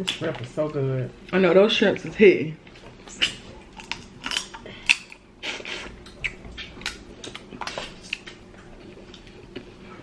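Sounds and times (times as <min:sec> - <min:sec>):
lip smacks and sucking: 0:03.0 - 0:03.5
shrimp shell crackling peeled: 0:03.1 - 0:05.2.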